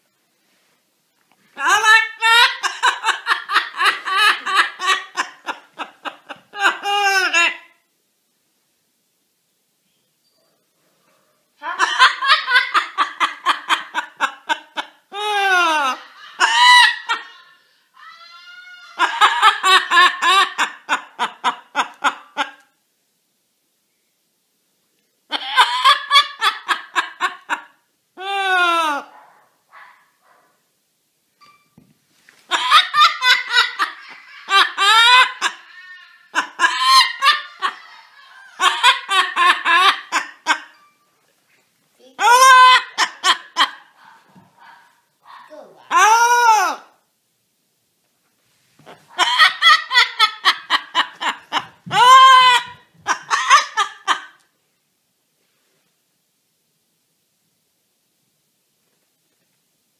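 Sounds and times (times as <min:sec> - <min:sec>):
parrot mimicking laughter: 0:01.6 - 0:07.8, 0:11.6 - 0:22.7, 0:25.3 - 0:29.1, 0:32.5 - 0:40.8, 0:42.0 - 0:47.0, 0:48.9 - 0:54.4
parrot whooping calls: 0:51.9 - 0:53.6.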